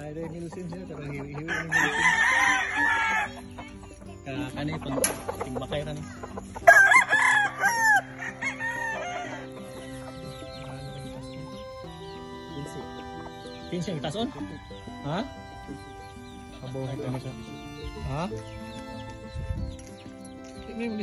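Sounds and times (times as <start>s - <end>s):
rooster crowing: 1.5s - 3.4s, 6.7s - 9.6s.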